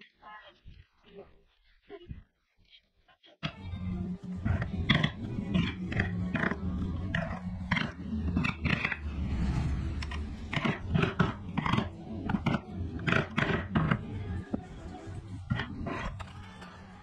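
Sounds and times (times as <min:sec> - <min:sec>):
carving tool cutting wood: 0:03.5 - 0:09.4, 0:10.0 - 0:14.7
low steady hum: 0:03.5 - 0:17.0.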